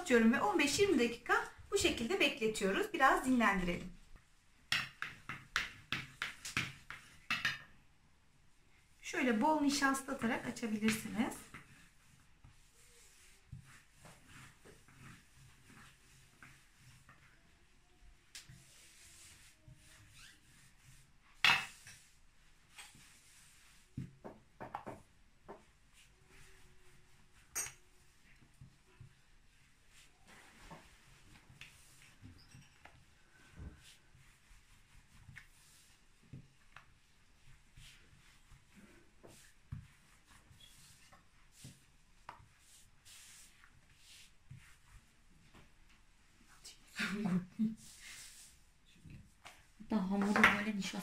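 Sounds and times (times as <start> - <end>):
hands rubbing floured dough: 2.0 - 7.6, 9.2 - 46.9, 47.6 - 51.0
rolling pin knocking on wooden table: 24.2 - 25.6.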